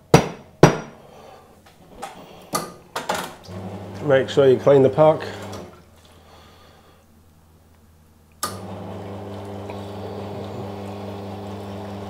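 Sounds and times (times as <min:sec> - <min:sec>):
water flushing through machine: 0:03.4 - 0:05.9, 0:08.4 - 0:12.0
espresso machine pump humming: 0:03.5 - 0:05.8, 0:08.5 - 0:12.0.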